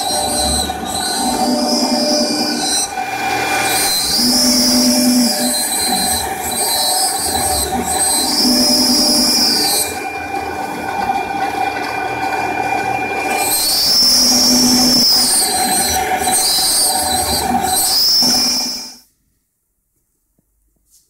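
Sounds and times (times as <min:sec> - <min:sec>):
high cutter screech: 0:00.0 - 0:10.2, 0:13.2 - 0:19.0
router spindle whine: 0:00.0 - 0:19.0.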